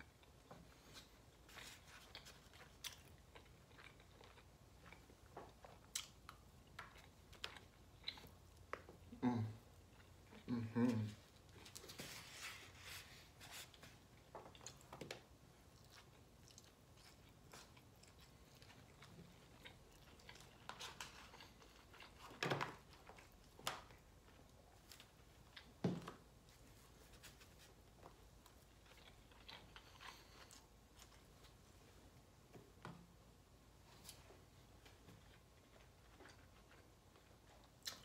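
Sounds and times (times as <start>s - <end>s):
chewing and mouth sounds: 0.0s - 11.9s, 14.2s - 25.8s, 28.0s - 31.6s, 35.2s - 38.0s.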